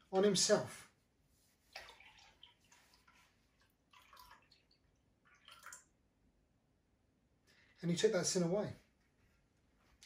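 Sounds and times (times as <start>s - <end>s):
liquid trickling into glass: 3.9s - 5.9s.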